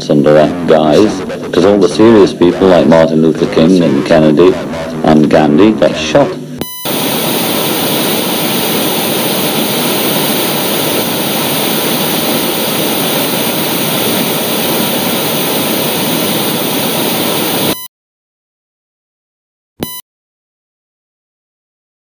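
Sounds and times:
loud static rushing noise: 0:06.8 - 0:17.8.

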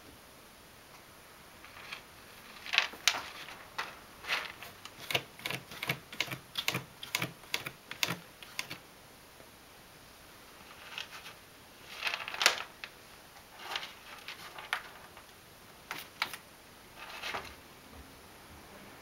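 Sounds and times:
cat scratching cat litter: 0:01.7 - 0:08.8, 0:10.6 - 0:17.6.

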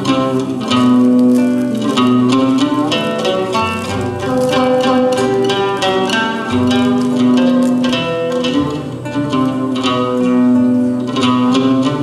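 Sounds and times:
folk ensemble plucked strings: 0:00.0 - 0:12.0.

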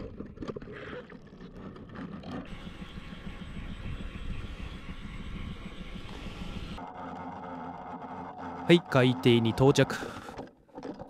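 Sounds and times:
outboard engine idling: 0:00.0 - 0:11.0.

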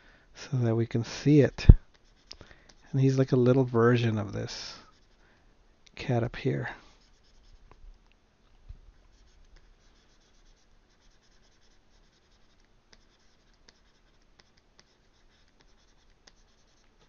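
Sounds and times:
stylus scratching on tablet: 0:01.0 - 0:05.2, 0:06.9 - 0:07.6, 0:09.0 - 0:17.0.

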